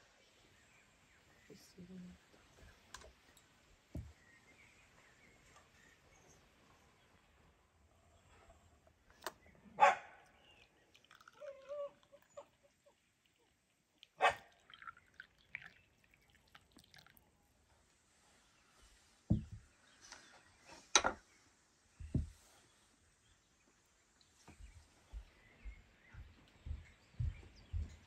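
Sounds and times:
tea pouring into glass cup: 0:10.4 - 0:17.3.

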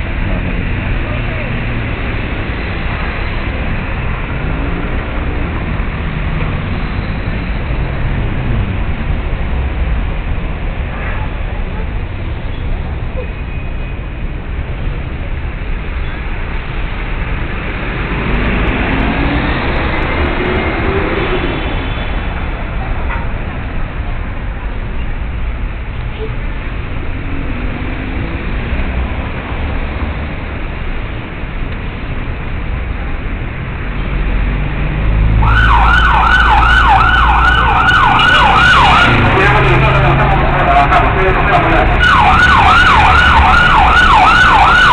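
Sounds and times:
vehicle engine accelerating: 0:00.0 - 0:10.9, 0:17.0 - 0:24.3, 0:33.0 - 0:44.9
road traffic rumble: 0:00.0 - 0:44.9
siren wailing: 0:35.4 - 0:44.9.

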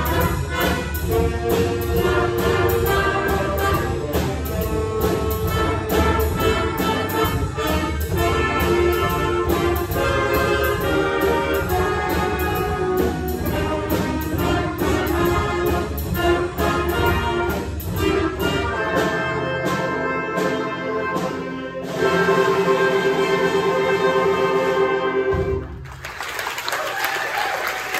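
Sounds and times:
drum kit: 0:00.0 - 0:25.9
jazz band playing: 0:00.0 - 0:25.9
audience applause: 0:25.7 - 0:27.9.

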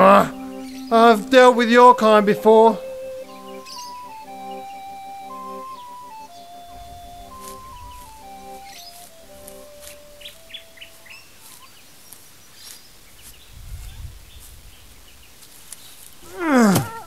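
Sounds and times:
soundtrack melody: 0:00.0 - 0:11.1
birds chirping: 0:00.0 - 0:17.0
person yelling: 0:16.4 - 0:17.0.

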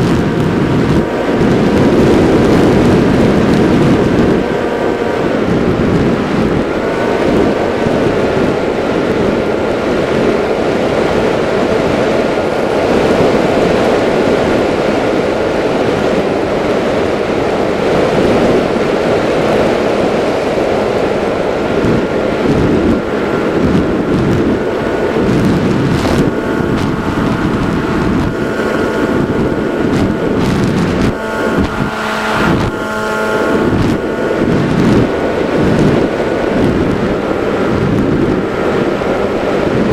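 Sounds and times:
model plane motor whining: 0:00.0 - 0:39.9
wind rush on microphone: 0:00.0 - 0:39.9.

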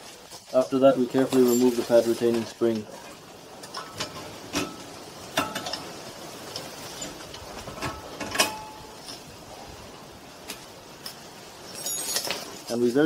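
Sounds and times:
sharp metal clinks: 0:01.1 - 0:02.1, 0:11.6 - 0:12.8.

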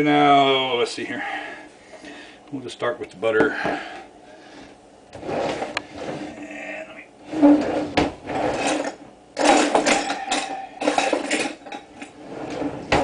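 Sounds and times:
objects shifted and knocked about: 0:07.3 - 0:13.0.

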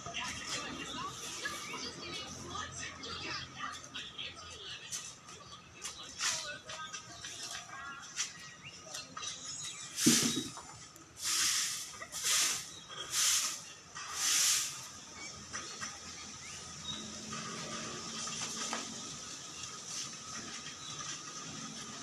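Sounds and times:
broom sweeping leaves on concrete: 0:01.1 - 0:01.9, 0:09.9 - 0:10.6, 0:11.2 - 0:15.0, 0:18.4 - 0:20.6
thump: 0:10.0 - 0:10.6.

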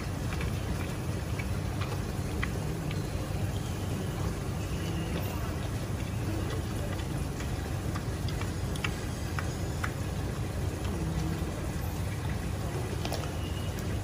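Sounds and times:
animals crunching vegetables: 0:00.0 - 0:09.4.

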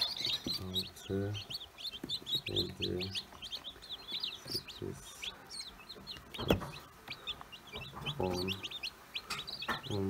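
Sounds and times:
chicks peeping: 0:00.0 - 0:10.0.

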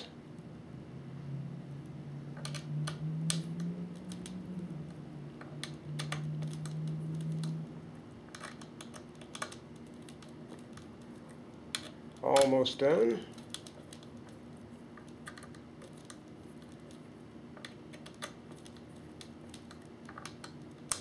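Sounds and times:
low steady hum: 0:00.0 - 0:21.0
hex key clicking on screws: 0:08.3 - 0:12.5.

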